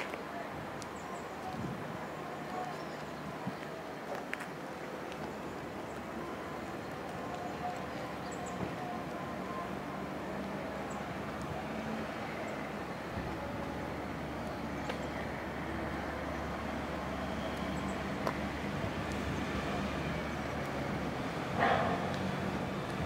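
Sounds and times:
road traffic hum: 0.0 - 23.0
faint engine drone: 5.3 - 23.0.

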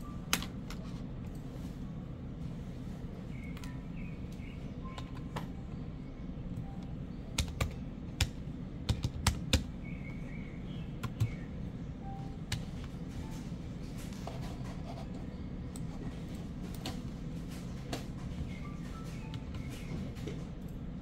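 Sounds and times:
computer keyboard clicks: 7.3 - 9.7, 11.0 - 11.4.

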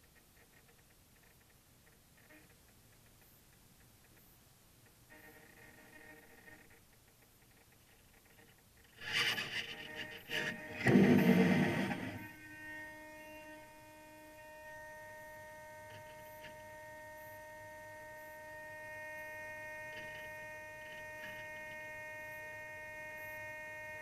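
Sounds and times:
high electronic whine: 8.9 - 24.0.

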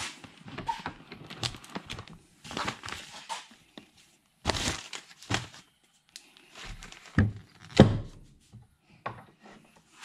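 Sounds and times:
newspaper rustling and crinkling: 0.0 - 7.7.

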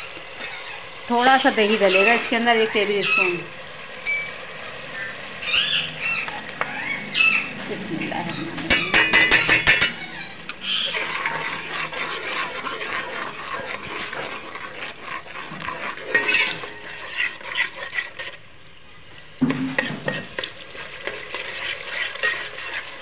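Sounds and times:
masala sizzling in oil: 0.0 - 23.0
spoon scraping a steel pot: 7.3 - 18.4, 19.4 - 23.0.

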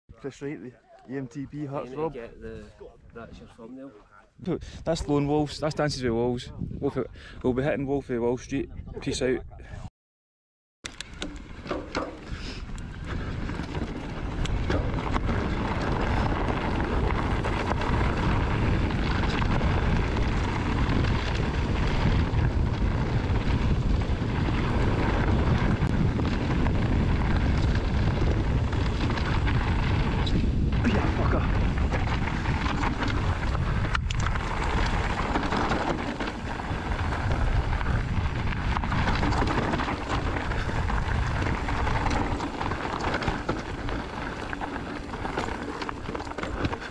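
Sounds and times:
wind buffeting microphone: 4.5 - 9.9, 11.0 - 46.9
bike tyres rolling on gravel: 10.9 - 46.9.

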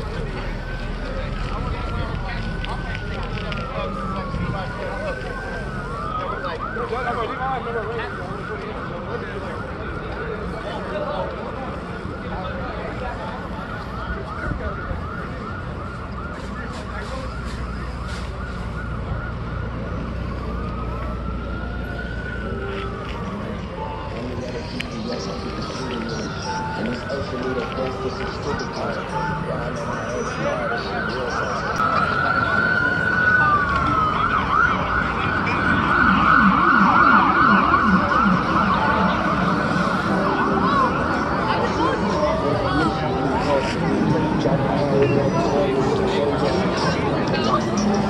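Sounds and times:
emergency siren: 0.0 - 48.0.

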